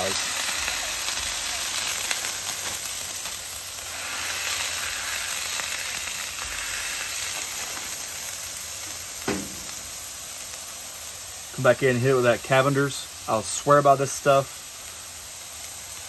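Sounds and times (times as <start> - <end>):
meat sizzling on a griddle: 0.0 - 16.0
metal smasher pressing patties: 8.9 - 10.0.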